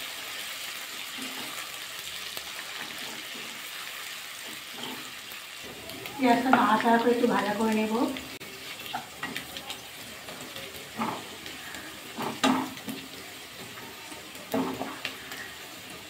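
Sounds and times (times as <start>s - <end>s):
onions sizzling in oil: 0.0s - 16.0s
spatula striking pan: 12.1s - 13.8s.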